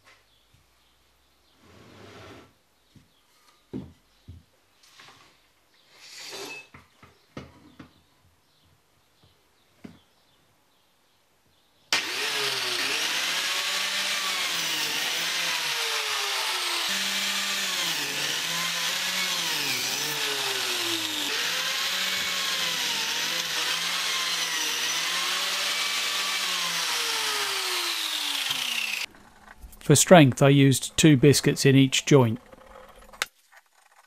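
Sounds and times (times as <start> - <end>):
biscuit joiner cutting wood: 11.9 - 29.5.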